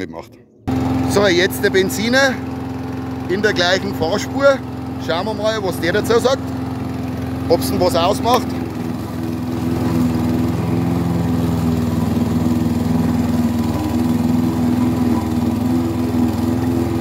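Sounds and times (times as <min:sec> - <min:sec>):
lawn mower engine under load: 0:00.7 - 0:17.0.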